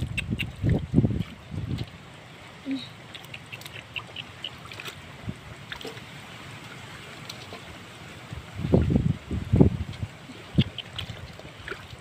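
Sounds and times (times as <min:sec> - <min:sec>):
hands splashing in muddy water: 0:03.1 - 0:06.2, 0:10.2 - 0:12.0.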